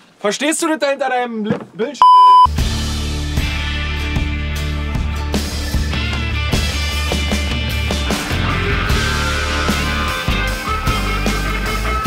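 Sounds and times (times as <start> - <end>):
rock music with bass and drums: 2.5 - 12.0.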